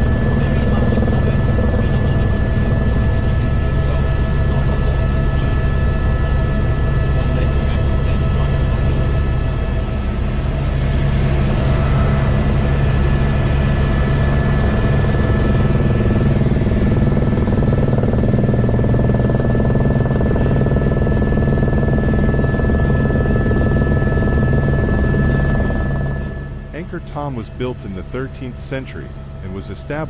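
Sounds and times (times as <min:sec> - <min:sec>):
helicopter rotor and engine drone: 0:00.0 - 0:30.0
high whine: 0:06.7 - 0:30.0.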